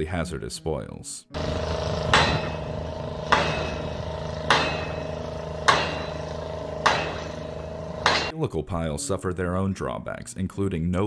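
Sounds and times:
rig engine drone: 1.4 - 8.3
pile-driving hammer striking: 2.0 - 8.3.

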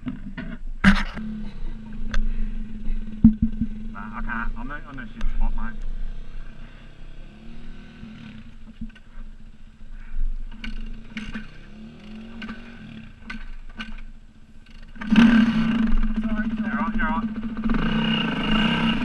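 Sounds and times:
dirt bike engine idling and revving: 0.3 - 19.0
engine knocks: 2.0 - 5.3.

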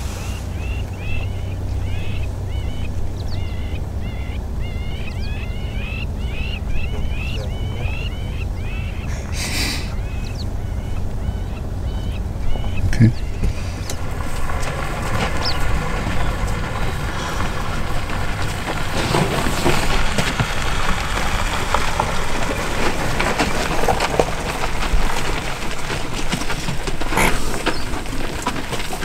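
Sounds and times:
vehicle engines idling: 0.0 - 29.0.

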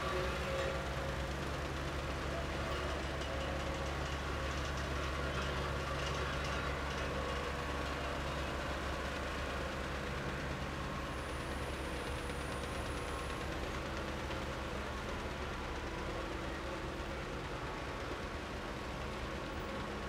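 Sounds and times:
wheel loader diesel engine running: 0.0 - 20.0.

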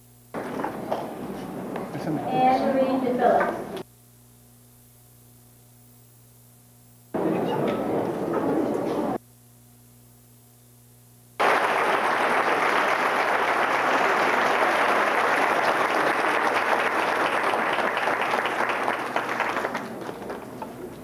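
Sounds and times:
faint hum: 0.0 - 21.0
audience applause: 11.4 - 21.0.

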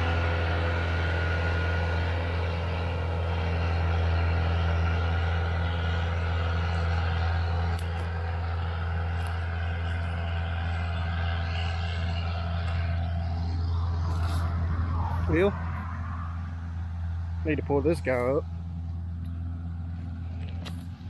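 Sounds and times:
heavy diesel engine droning: 0.0 - 21.0.

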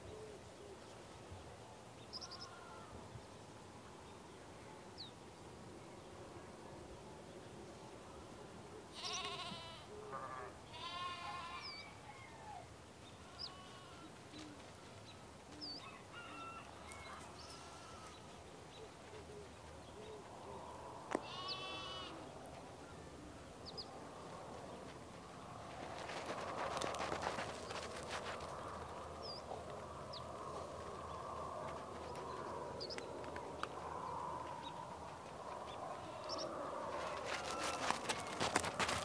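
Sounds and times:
livestock bleating: 2.3 - 2.9, 8.9 - 11.9, 13.2 - 14.2, 17.4 - 18.2, 21.1 - 22.3, 36.0 - 36.4.

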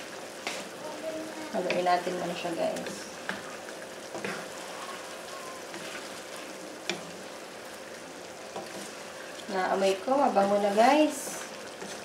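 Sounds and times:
chicken sizzling in hot oil: 0.0 - 12.0.

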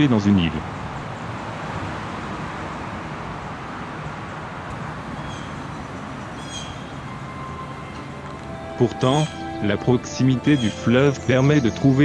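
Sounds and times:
distant traffic rumble: 0.0 - 12.0
faint high chirp: 5.1 - 9.7.

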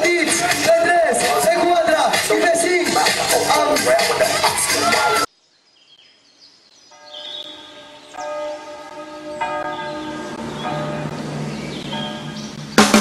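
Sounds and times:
music: 0.0 - 5.3, 11.8 - 13.0
bell ringing: 11.9 - 12.5.

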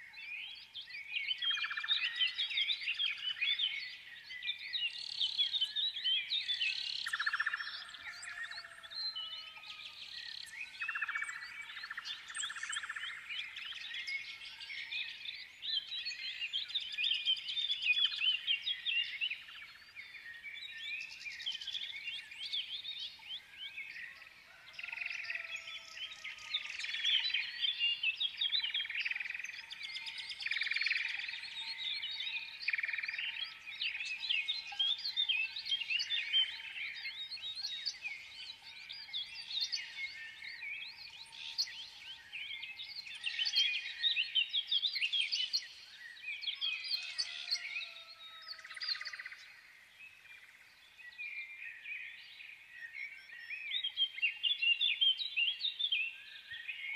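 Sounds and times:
small birds chirping: 0.0 - 56.9.

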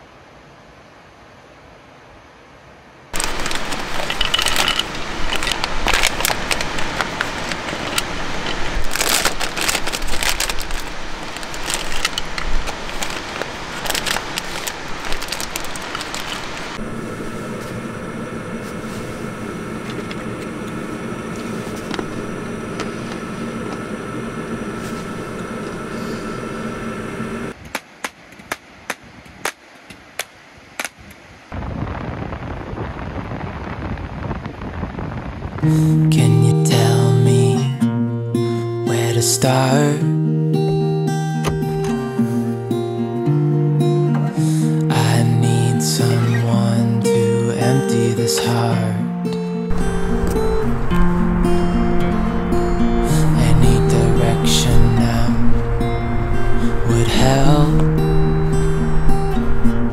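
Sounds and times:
plastic snack pouches crinkling: 3.2 - 16.8
low hum: 3.2 - 27.6, 48.6 - 59.9
even hiss: 44.3 - 59.9.

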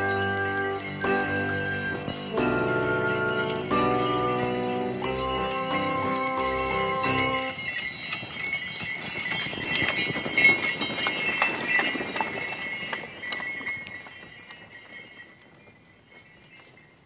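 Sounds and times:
short tune of steady notes: 0.0 - 7.6
muffled hoofbeats on snow: 0.0 - 17.0
sleigh bells jingling: 0.0 - 17.0.

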